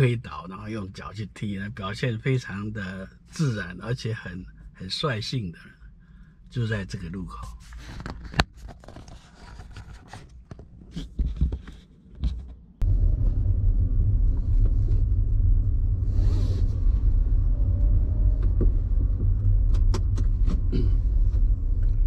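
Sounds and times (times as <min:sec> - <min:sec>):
car road rumble: 0:12.0 - 0:22.0.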